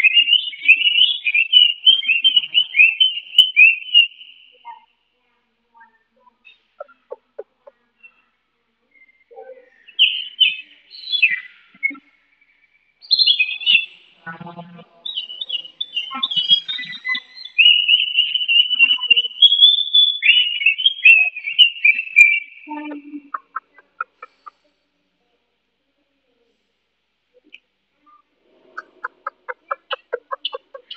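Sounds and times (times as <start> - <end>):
bird singing whistled notes: 0.0 - 4.9, 8.9 - 14.0, 15.0 - 22.7.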